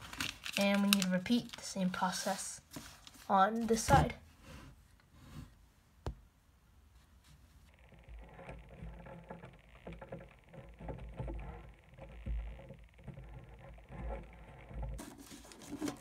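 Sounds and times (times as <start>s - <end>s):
paper rustling and crinkling: 0.0s - 3.9s, 15.0s - 16.0s.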